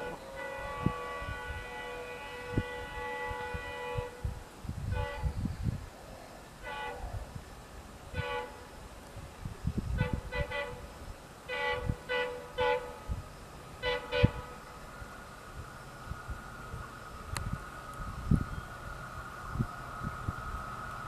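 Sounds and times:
locomotive air horn tooting: 0.0 - 4.3, 4.9 - 5.5, 6.6 - 7.2, 8.1 - 8.7, 9.9 - 10.9, 11.5 - 13.2, 13.8 - 14.6
low rumble of train: 0.0 - 21.0.

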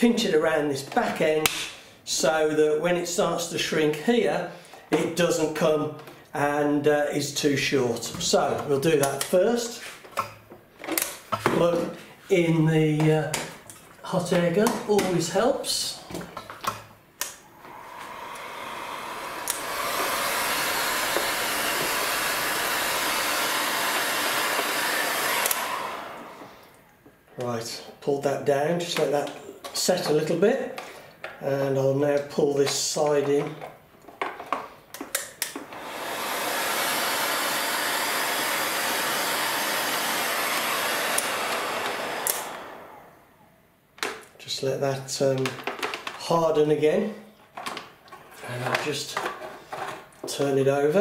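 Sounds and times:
hot air gun hissing: 17.7 - 26.4.

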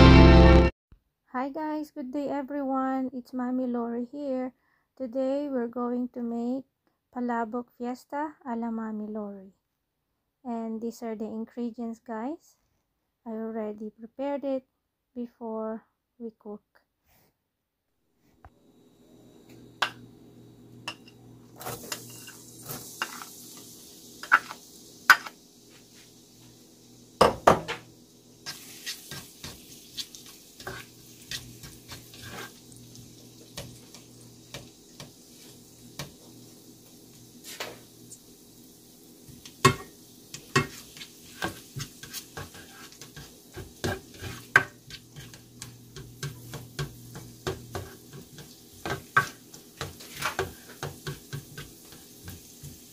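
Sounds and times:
garlic sizzling in hot oil: 19.3 - 52.9
spatula scraping a metal pot: 28.4 - 32.7, 39.7 - 52.4.

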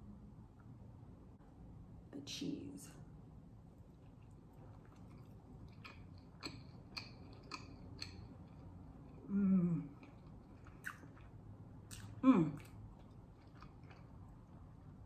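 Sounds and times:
person chewing: 3.8 - 15.0
wet mouth clicks: 4.0 - 11.3
person humming mm: 9.2 - 9.9.

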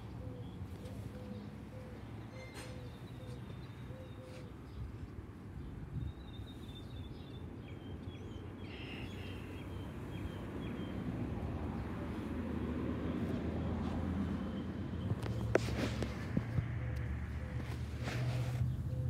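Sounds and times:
small songbird chirping: 5.6 - 11.0.

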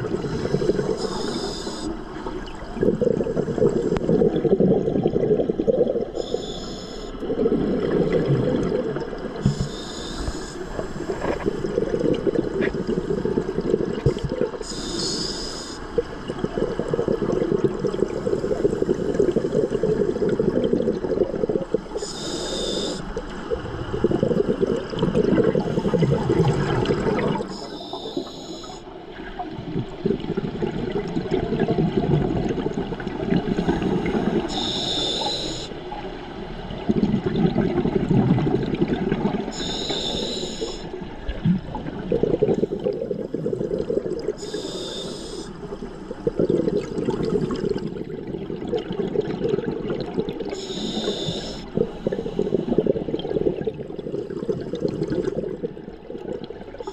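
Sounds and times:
gurgling exhaled bubbles: 0.0 - 6.6, 7.2 - 15.3, 15.9 - 56.9
regulator inhale hiss: 0.2 - 2.1, 6.2 - 7.2, 9.4 - 11.9, 14.1 - 16.0, 21.9 - 23.3, 27.4 - 28.9, 33.5 - 35.8, 39.5 - 41.0, 44.3 - 46.0, 50.5 - 53.0.

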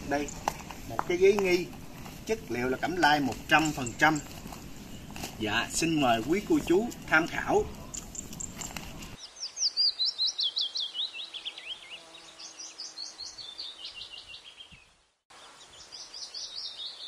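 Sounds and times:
bird chirping rapidly: 2.4 - 14.8.

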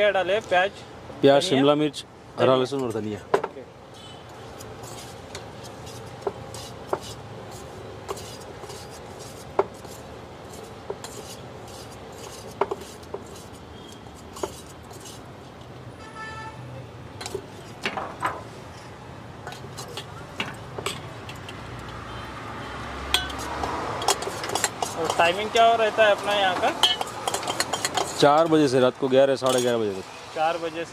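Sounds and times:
spoon stirring and scraping bowl: 4.4 - 15.7, 19.5 - 22.0, 23.1 - 28.7
spoon clinking against metal bowl: 23.1 - 25.8, 26.7 - 28.6.

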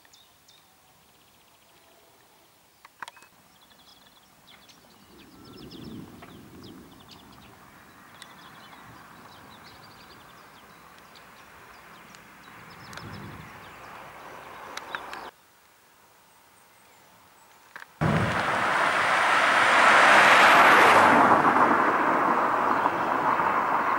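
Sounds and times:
steady outdoor hiss: 0.0 - 23.9
small birds chirping: 2.7 - 15.4
low rumbling swells: 18.0 - 23.9.

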